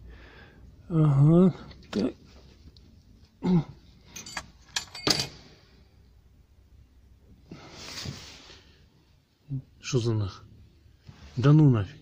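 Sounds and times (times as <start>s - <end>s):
wrench clattering into engine: 4.1s - 5.4s.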